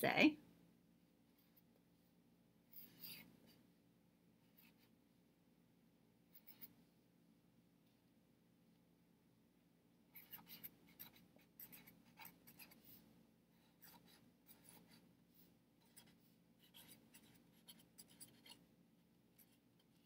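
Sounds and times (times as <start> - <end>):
marker scratching on paper: 2.7 - 3.6, 6.3 - 6.8, 10.1 - 13.1, 13.7 - 15.1, 15.8 - 18.6, 19.4 - 20.0.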